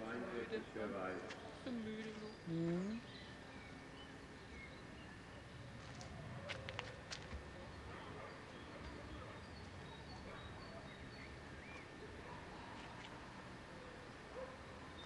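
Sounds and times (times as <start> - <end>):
faint outdoor background: 0.0 - 15.0.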